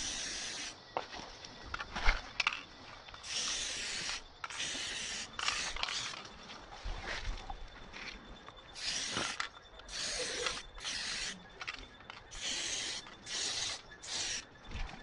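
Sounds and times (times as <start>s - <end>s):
spray paint can hissing: 0.0s - 0.8s, 3.2s - 6.2s, 8.8s - 14.4s.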